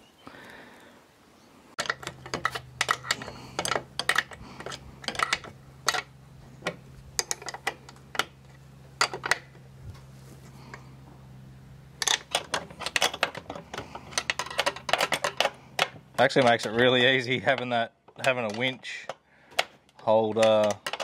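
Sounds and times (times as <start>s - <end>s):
hand tool clicking metallically: 1.8s - 6.1s.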